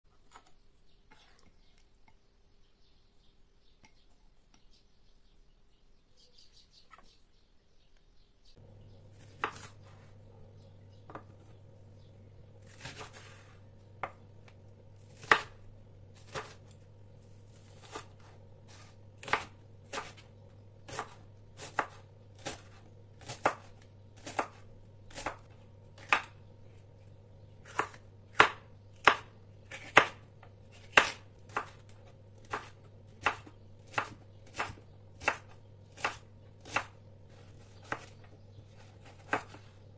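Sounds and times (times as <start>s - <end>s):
faint steady hum: 7.3s - 39.9s
knife chopping on wooden board: 9.2s - 10.1s, 11.0s - 11.5s, 12.6s - 15.6s, 16.2s - 16.7s, 17.7s - 20.2s, 20.9s - 26.4s, 27.6s - 38.1s, 38.7s - 39.7s.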